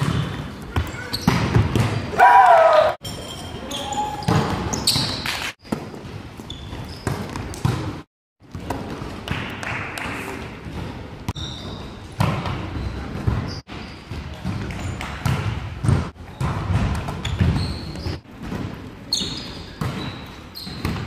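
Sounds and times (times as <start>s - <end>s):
shoe squeaks on court: 0.0s - 1.6s, 3.0s - 5.5s, 6.4s - 7.5s, 11.3s - 15.0s, 17.2s - 18.2s, 19.1s - 21.0s
volleyball struck and bouncing: 0.0s - 2.2s, 6.9s - 11.4s, 14.2s - 18.7s.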